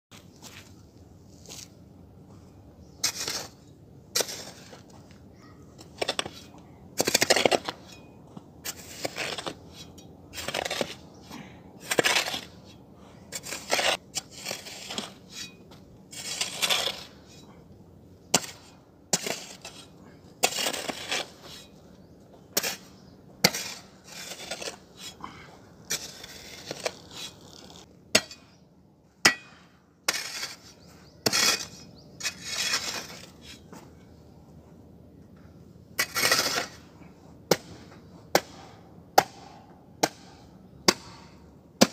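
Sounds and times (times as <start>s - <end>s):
hoe scraping soil and gravel: 2.8s - 28.6s, 30.0s - 34.2s, 35.8s - 38.2s.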